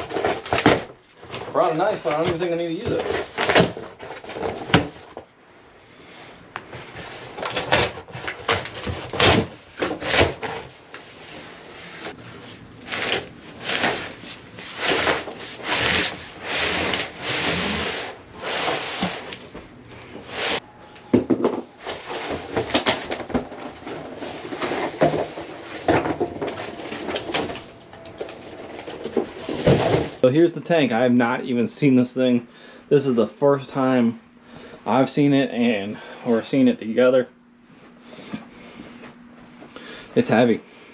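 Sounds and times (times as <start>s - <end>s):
cardboard scraping and sliding: 6.7s - 20.6s, 21.8s - 30.2s.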